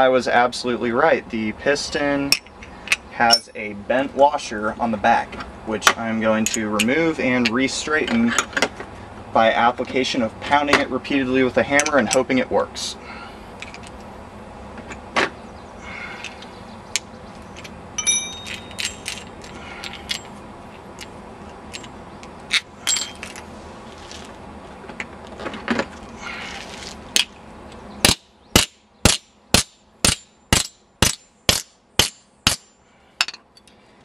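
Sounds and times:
small metal parts clinking: 0:17.6 - 0:20.4, 0:21.0 - 0:23.4.

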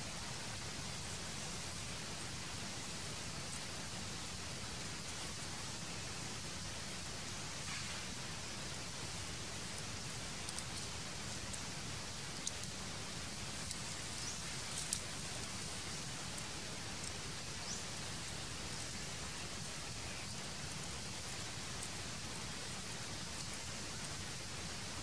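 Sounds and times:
steady background hiss: 0:00.0 - 0:25.0
faint sharp ticks: 0:10.4 - 0:11.7, 0:13.6 - 0:15.6.

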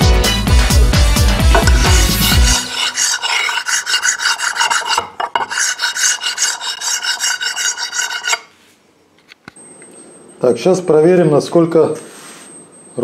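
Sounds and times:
metal scraper rasping on steel: 0:01.4 - 0:08.5.

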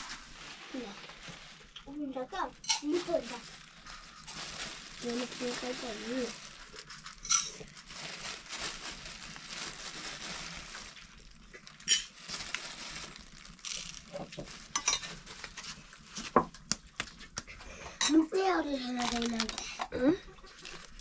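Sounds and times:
kitchenware clinking: 0:02.6 - 0:03.0, 0:07.2 - 0:07.7, 0:14.8 - 0:15.2.

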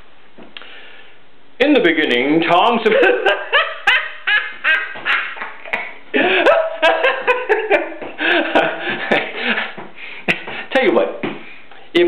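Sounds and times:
man laughing: 0:02.8 - 0:10.7.

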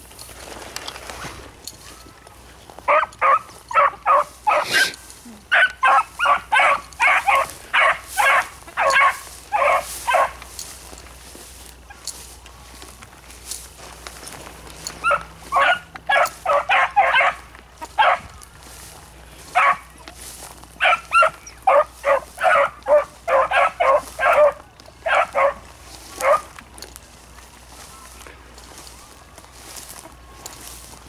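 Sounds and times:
beagles barking: 0:02.8 - 0:10.7, 0:14.3 - 0:18.4, 0:19.3 - 0:27.0.

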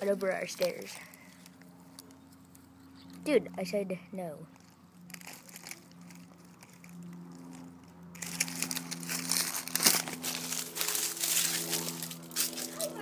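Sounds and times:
footsteps on leaves and gravel: 0:04.5 - 0:13.0.

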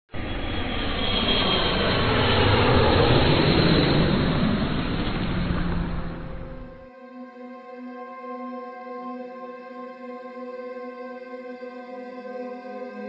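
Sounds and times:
loud rushing rumbling noise: 0:00.2 - 0:06.8.

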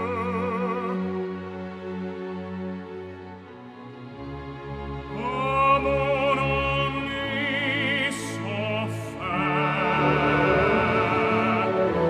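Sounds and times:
operatic tenor singing: 0:00.0 - 0:01.8, 0:05.0 - 0:12.0
orchestra playing: 0:00.0 - 0:12.0.

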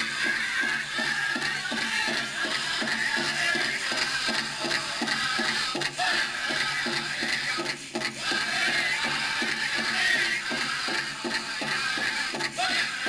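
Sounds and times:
drum steady beat: 0:00.0 - 0:13.0
high singing: 0:00.0 - 0:13.0.

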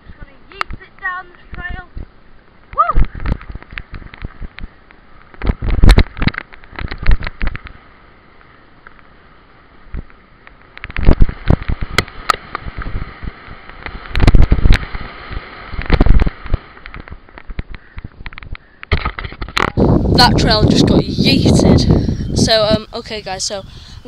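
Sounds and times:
camera knocking on bumps: 0:05.3 - 0:07.8.

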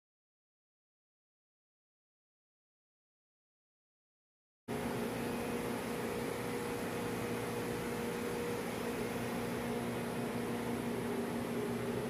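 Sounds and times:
machinery humming: 0:04.7 - 0:12.0.

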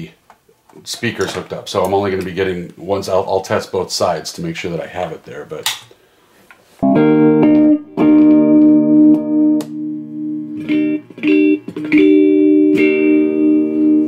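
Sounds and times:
electric guitar chords strummed: 0:06.8 - 0:14.0.

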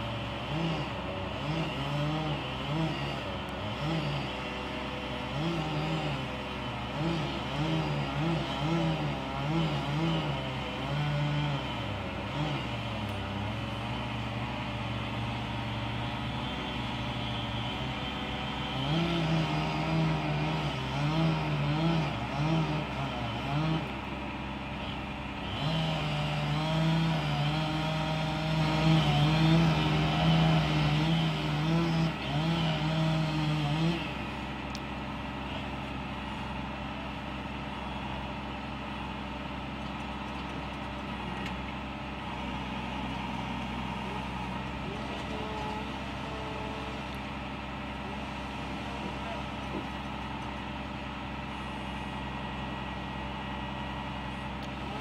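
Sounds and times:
chainsaw cutting wood: 0:00.0 - 0:36.9
truck engine droning: 0:00.0 - 0:55.0.

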